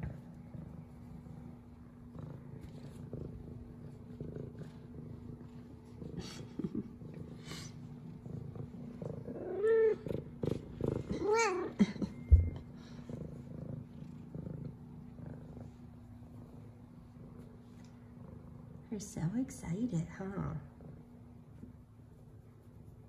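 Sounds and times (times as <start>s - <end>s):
cat purring: 0.0s - 23.0s.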